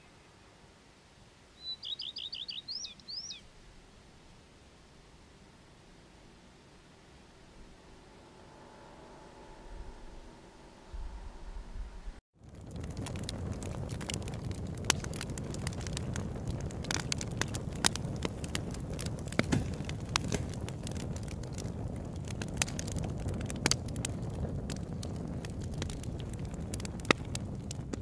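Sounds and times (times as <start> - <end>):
log fire crackling and popping: 12.4 - 28.0.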